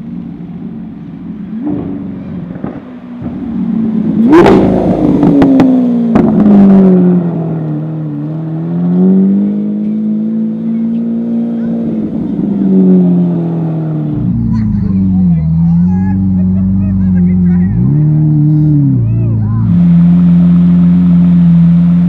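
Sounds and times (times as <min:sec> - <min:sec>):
sports car engine driving by: 0:00.0 - 0:22.0
exhaust cracks: 0:00.3 - 0:08.2.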